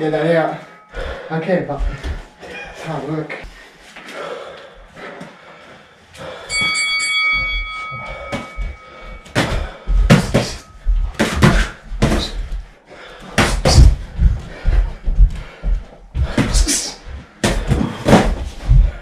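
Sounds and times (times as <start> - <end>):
boxing timer bell ringing: 6.5 - 11.0.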